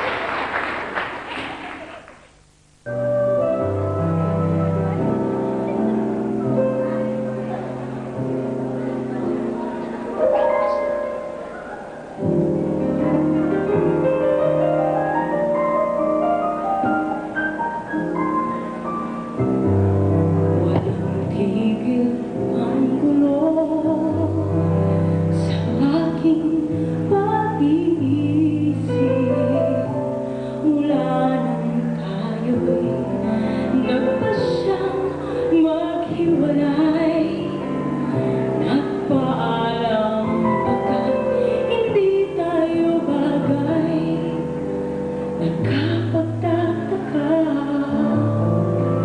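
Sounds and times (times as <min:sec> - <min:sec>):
instrumental accompaniment: 0:02.8 - 0:49.0
woman singing a slow ballad: 0:20.6 - 0:44.7, 0:45.4 - 0:49.0.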